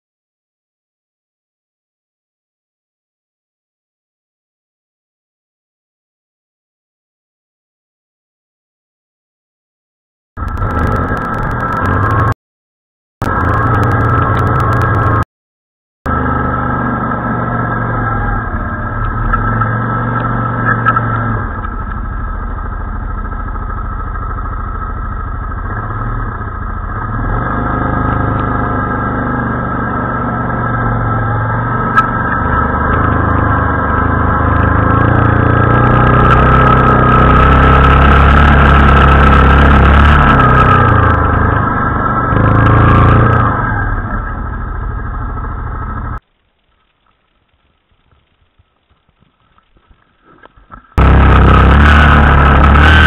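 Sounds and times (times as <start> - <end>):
quad bike engine running: 10.4 - 12.4, 13.2 - 15.2, 16.1 - 46.2, 50.2 - 53.0.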